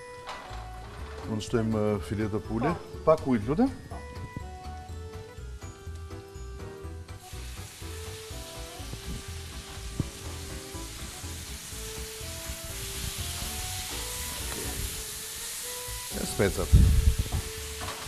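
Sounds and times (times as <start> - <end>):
water sizzling in hot pan: 7.1 - 18.0
onion frying in oil: 7.2 - 18.0.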